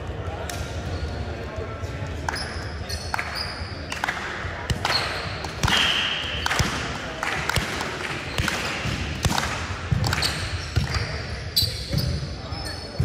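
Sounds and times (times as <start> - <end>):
hands slapping volleyball: 2.2 - 11.2.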